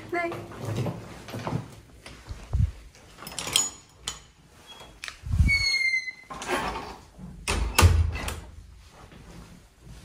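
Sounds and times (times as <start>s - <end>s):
door squeak: 4.6s - 6.9s.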